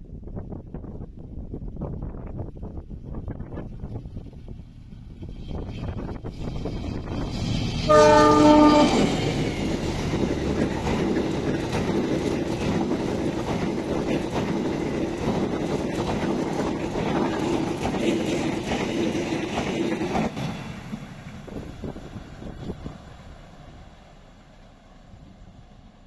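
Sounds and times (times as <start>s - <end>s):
train coaches rumbling past: 1.8s - 26.0s
train horn blast: 7.8s - 9.4s.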